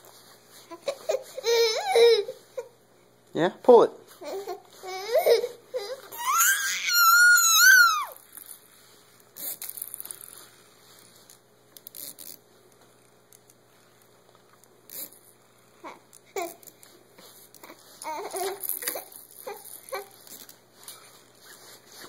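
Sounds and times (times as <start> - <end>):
toddler whining: 0.7 - 2.7, 4.2 - 8.2, 17.6 - 20.2
toddler squealing: 4.9 - 8.2
faint clicks and rustles: 8.1 - 22.0.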